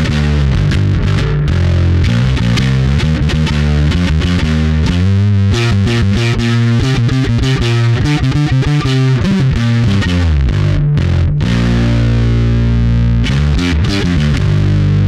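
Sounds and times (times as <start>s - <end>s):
distorted electric bass riff: 0.0s - 15.0s.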